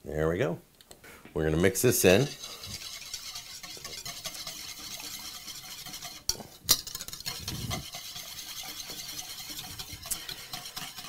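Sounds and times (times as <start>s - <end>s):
whisk swishing in bowl: 1.8s - 11.0s.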